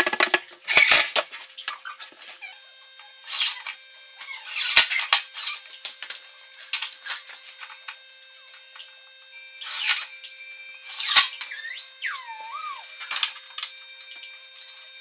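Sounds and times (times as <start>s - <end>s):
cordless drill driving screws: 3.2s - 5.6s, 9.6s - 10.1s, 10.9s - 11.9s
squeak with wavering pitch: 9.6s - 13.1s.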